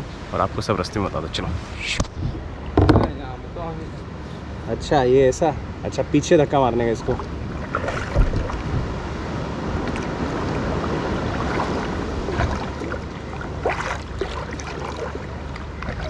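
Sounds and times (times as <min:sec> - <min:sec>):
wind buffeting microphone: 0:01.2 - 0:03.3, 0:06.5 - 0:16.0
knock: 0:02.8 - 0:03.1
water sloshing against hull: 0:06.8 - 0:16.0
kayak paddling: 0:07.0 - 0:16.0.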